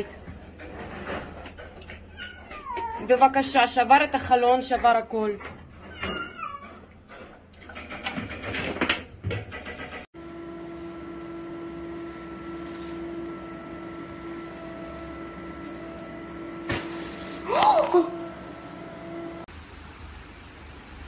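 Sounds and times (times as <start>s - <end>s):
litter box motor humming: 10.2s - 19.5s.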